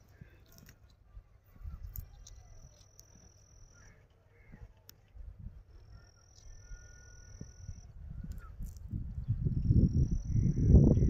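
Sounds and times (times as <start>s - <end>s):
faint bird chirps: 1.1s - 4.8s, 5.7s - 11.0s
low rumbles on microphone: 7.7s - 11.0s.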